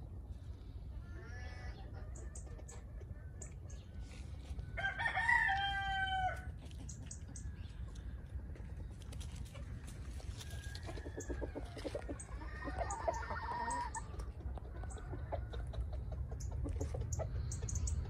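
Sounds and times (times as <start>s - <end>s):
chicken crowing: 4.7s - 6.6s, 10.3s - 15.6s
soft clucking: 9.4s - 18.0s.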